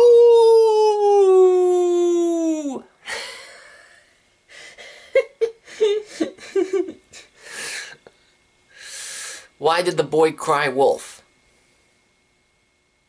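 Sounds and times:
man howling like a wolf: 0.0 - 2.9
breathy laughter: 3.0 - 8.0
sharp breath: 8.7 - 9.5.

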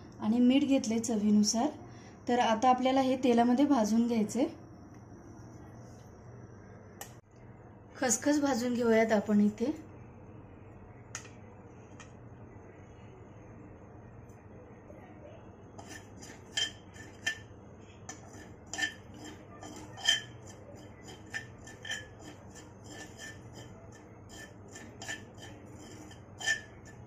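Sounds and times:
steady low hum: 0.0 - 27.0
spatula scraping metal pan: 15.8 - 17.5, 18.1 - 27.0.

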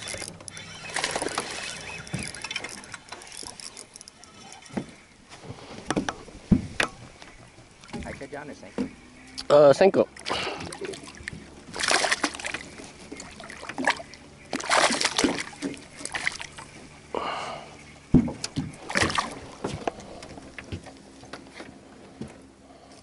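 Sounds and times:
fish thrashing and splashing: 0.0 - 5.0, 10.1 - 16.9, 18.2 - 21.0.

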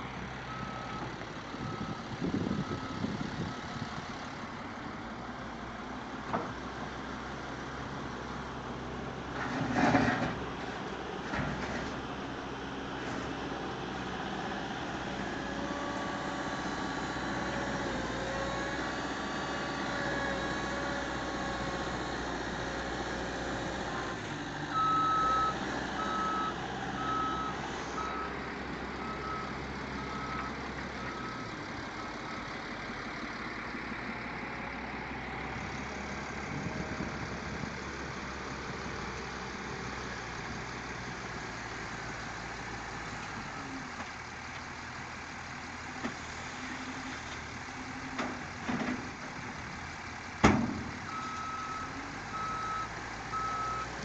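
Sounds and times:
diesel engine running: 0.0 - 54.0
reversing alarm beeping: 24.7 - 28.3, 29.0 - 31.4, 51.1 - 53.9.

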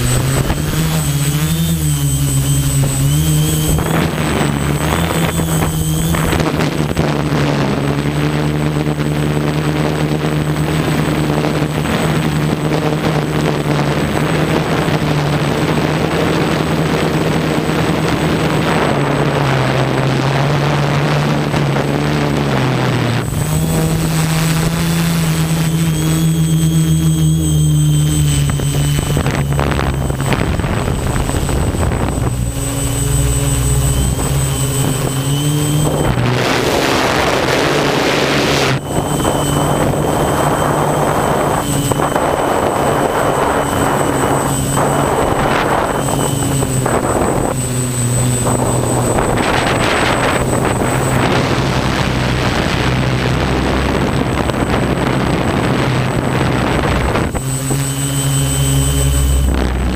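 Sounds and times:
rushing air noise: 0.0 - 8.2, 21.6 - 59.9
drone propellers buzzing: 0.0 - 59.9.

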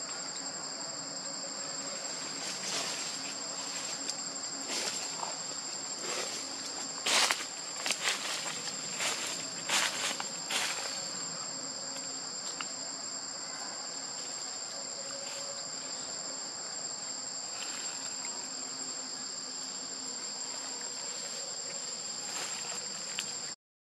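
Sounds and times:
insect chorus drone: 0.0 - 23.6
faint rustles: 1.9 - 11.2.

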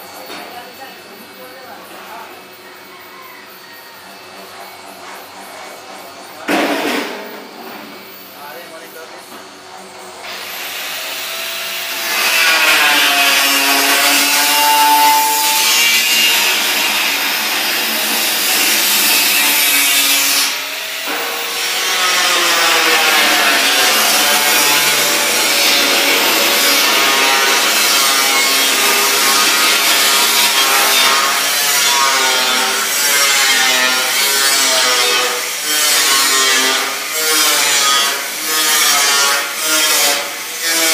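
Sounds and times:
power tool grinding metal: 9.8 - 40.9.

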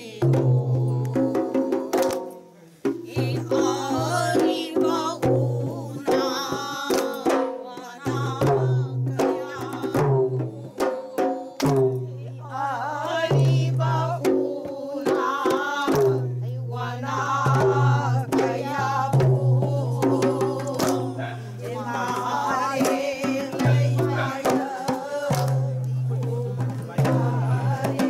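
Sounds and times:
barrel drum: 0.0 - 28.0
group singing: 0.0 - 28.0
hand claps: 2.0 - 2.4, 11.6 - 11.9, 20.7 - 21.2, 25.3 - 25.9.

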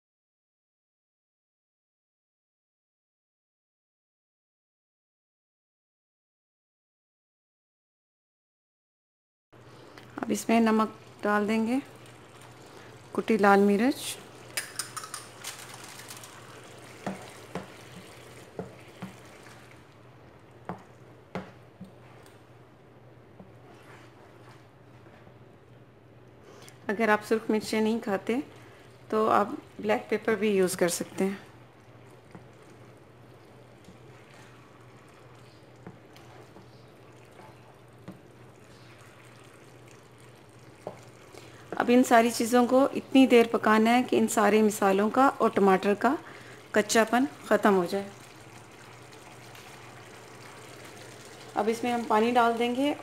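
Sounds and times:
spatula stirring sauce in pan: 11.8 - 22.6, 23.2 - 25.5, 28.4 - 42.7, 44.2 - 53.0
spatula clicking against pan: 14.6 - 15.3
wet squelching and scraping: 23.5 - 25.4.

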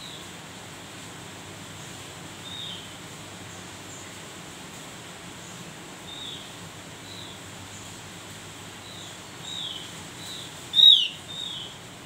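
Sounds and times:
bird chirping: 8.8 - 11.8.

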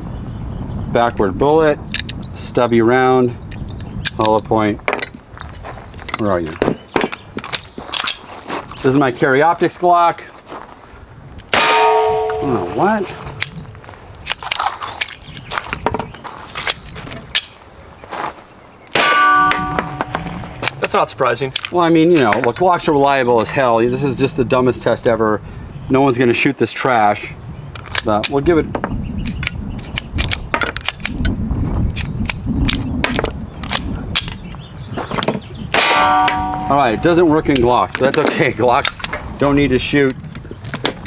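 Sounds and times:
pistol metallic clicks and knocks: 1.9 - 2.3, 3.5 - 8.2, 13.3 - 13.6, 14.2 - 17.6, 19.0 - 22.5, 27.8 - 34.5, 35.2 - 39.3
gunshot bang: 11.5 - 13.2, 19.0 - 20.8
steel target ringing: 11.5 - 13.4, 19.0 - 20.8, 35.8 - 37.4
pistol slide metallic clicks: 16.7 - 17.6.

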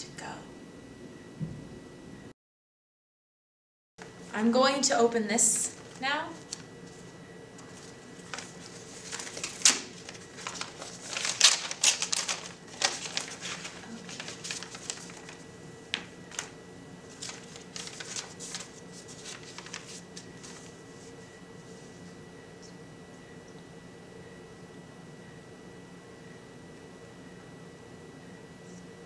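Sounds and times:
paper crackling and rustling: 5.4 - 22.1.

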